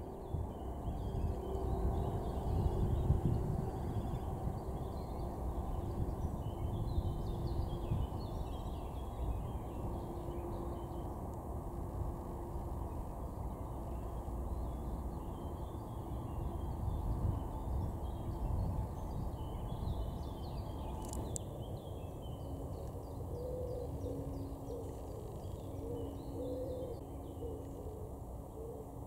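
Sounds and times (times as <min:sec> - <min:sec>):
steady low rumble: 0:00.0 - 0:29.0
small birds chirping: 0:12.6 - 0:28.6
low bird call: 0:22.2 - 0:29.0.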